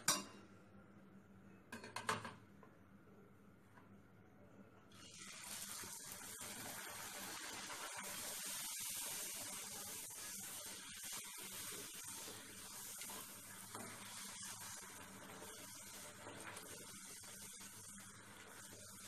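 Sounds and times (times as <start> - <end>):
frying in hot oil sizzle: 4.9 - 19.0.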